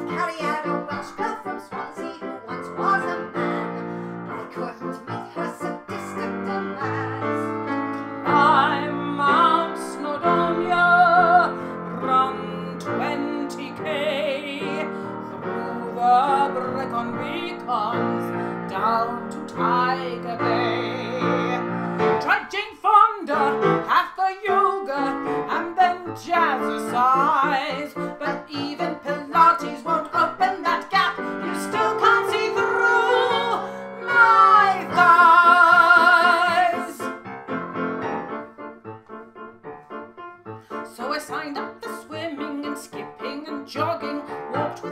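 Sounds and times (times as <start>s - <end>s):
woman singing operatically: 0.0s - 37.1s, 40.9s - 44.9s
piano accompaniment: 0.0s - 44.9s.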